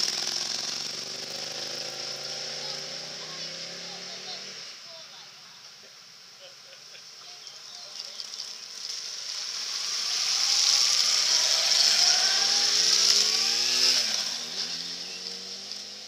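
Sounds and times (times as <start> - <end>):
motorcycle engine: 0.0 - 5.2, 7.4 - 16.0
water spray hissing: 7.3 - 15.6.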